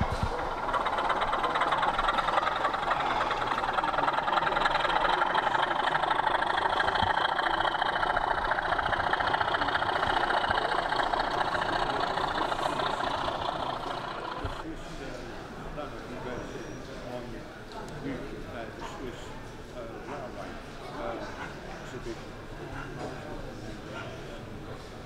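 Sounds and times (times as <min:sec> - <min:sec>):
model train buzzing rattle: 0:00.0 - 0:14.7.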